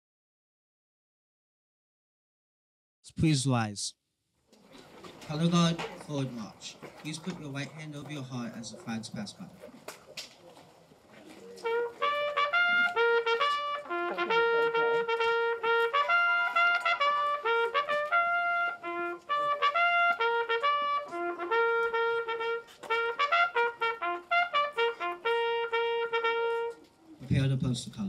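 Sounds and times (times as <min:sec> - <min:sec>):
solo trumpet bugle call: 0:11.6 - 0:26.8.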